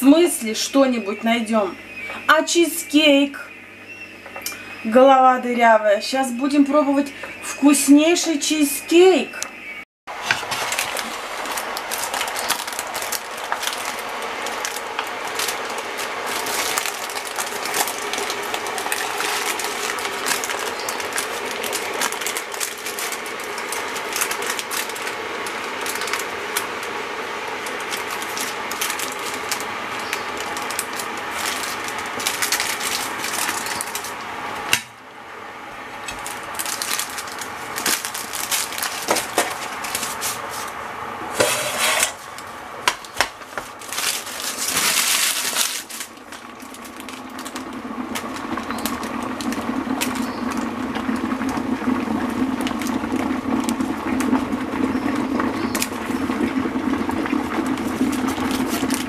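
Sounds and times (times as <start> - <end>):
baking paper crinkling: 10.2 - 34.3, 36.0 - 51.6, 52.6 - 59.0.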